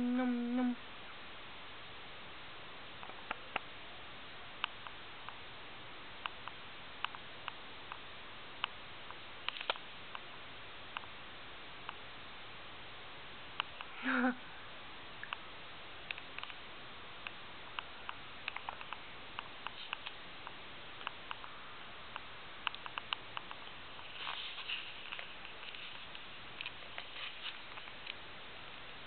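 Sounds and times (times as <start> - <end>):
guinea pig crunching dry food: 22.6 - 28.2.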